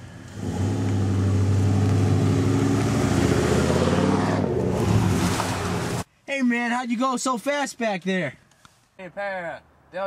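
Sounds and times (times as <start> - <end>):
truck engine accelerating: 0.2 - 6.0.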